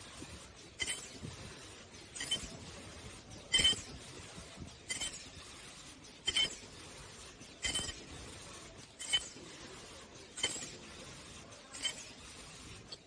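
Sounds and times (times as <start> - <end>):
machine stroke with high ring: 0.7 - 1.3, 2.0 - 2.7, 3.4 - 4.1, 4.9 - 6.9, 7.6 - 9.7, 10.3 - 13.0.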